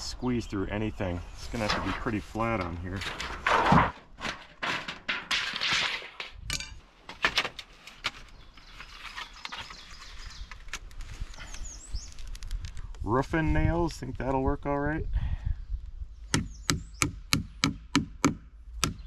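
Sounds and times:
thin metal crinkling against wood: 1.4 - 13.0.

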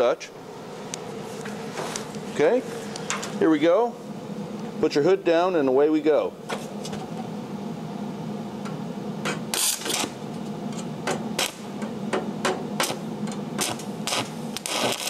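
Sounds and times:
welding arc crackling bursts: 9.5 - 10.3, 11.3 - 11.8, 12.8 - 15.0.

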